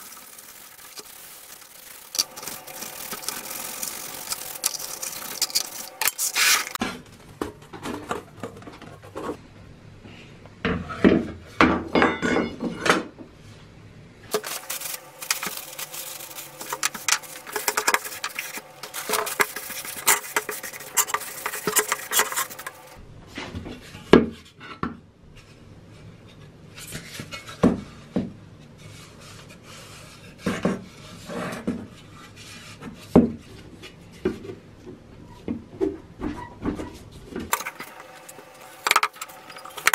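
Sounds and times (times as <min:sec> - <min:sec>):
metal helmet being scrubbed: 0:00.0 - 0:06.8, 0:14.3 - 0:23.0, 0:37.5 - 0:39.9.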